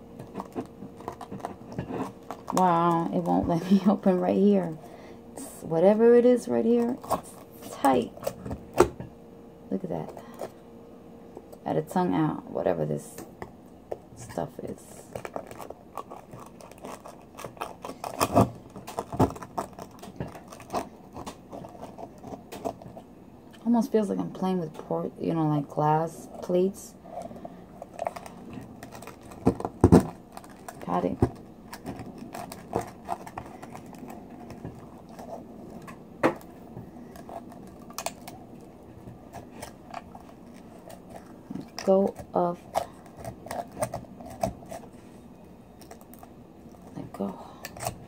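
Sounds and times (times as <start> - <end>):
knife scraping oyster shell: 15.1 - 22.8.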